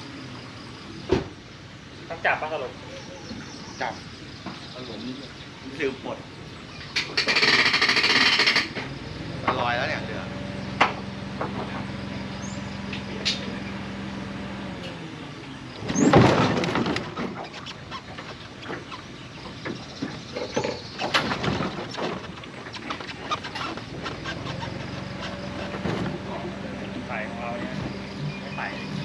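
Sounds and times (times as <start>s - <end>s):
motor hum: 0.0s - 29.0s
clattering knocks and bumps: 10.7s - 12.2s, 15.8s - 28.2s.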